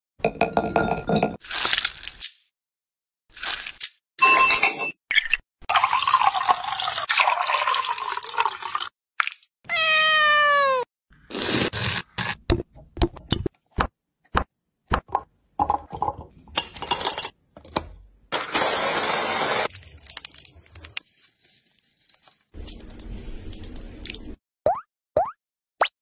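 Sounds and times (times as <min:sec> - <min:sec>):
food chopper blending: 0:18.4 - 0:19.7.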